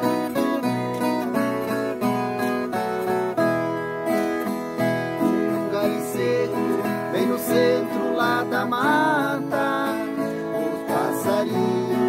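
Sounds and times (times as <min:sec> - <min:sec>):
plucked guitar duet: 0:00.0 - 0:12.0
man singing: 0:05.2 - 0:12.0.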